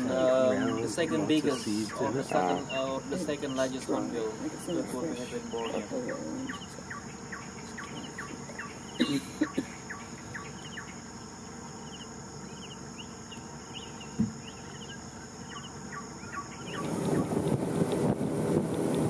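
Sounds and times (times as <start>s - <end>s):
high insect drone: 0.0s - 19.0s
rushing wind: 16.6s - 19.0s.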